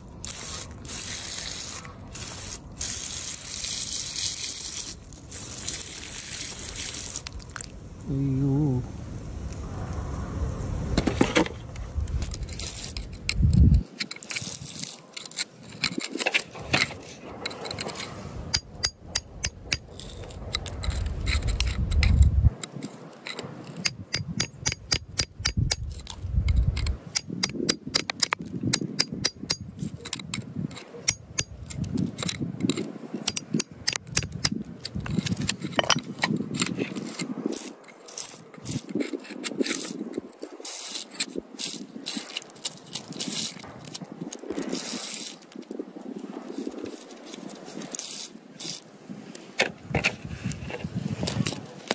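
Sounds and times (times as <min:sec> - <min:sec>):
metal tool scraping soil: 0:00.0 - 0:07.7, 0:12.2 - 0:51.9
stones clicking: 0:12.2 - 0:48.9.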